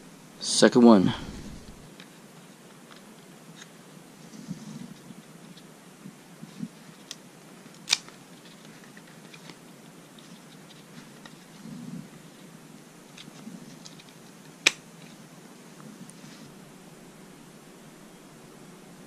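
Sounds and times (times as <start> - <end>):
handling rustle and ticks: 1.6 - 16.6.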